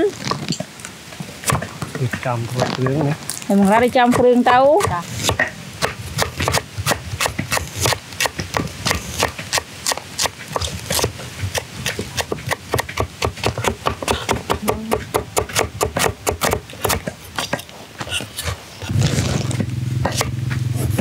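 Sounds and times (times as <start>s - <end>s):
knife chopping on wooden board: 3.7s - 18.5s, 20.0s - 21.0s.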